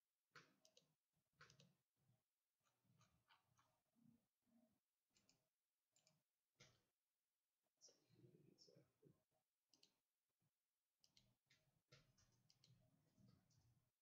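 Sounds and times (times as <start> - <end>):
typing on computer keyboard: 0.3 - 1.8.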